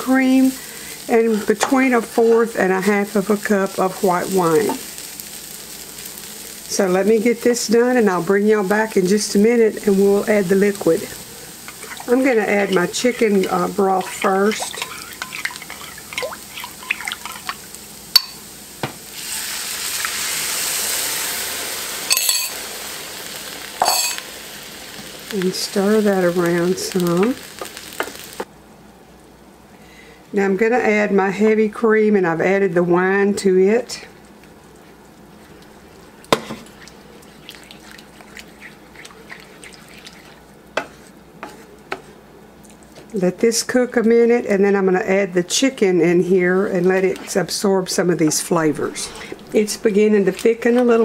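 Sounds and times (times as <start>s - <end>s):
broth sizzling in hot skillet: 0.0s - 28.5s, 33.0s - 43.0s, 45.6s - 51.0s
sauce simmering: 0.2s - 25.4s, 33.6s - 43.2s
wooden spoon stirring: 10.2s - 17.7s, 34.3s - 43.1s.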